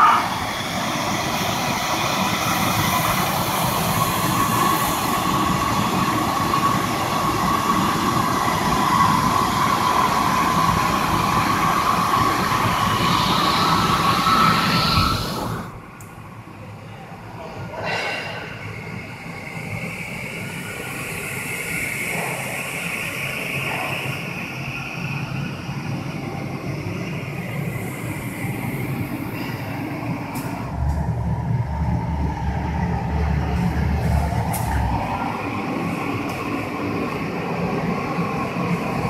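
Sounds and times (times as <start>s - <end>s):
deep rumble: 30.6s - 35.2s.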